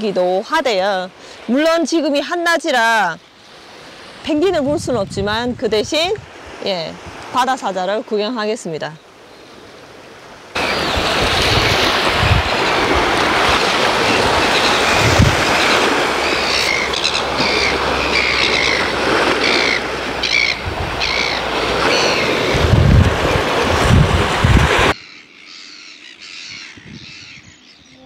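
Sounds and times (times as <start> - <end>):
sea on rocky shore: 0.0 - 28.0
seabird calls: 0.0 - 28.0
wind: 0.0 - 28.0
wind gusts thumping microphone: 4.2 - 7.4, 10.5 - 25.0, 26.5 - 27.6.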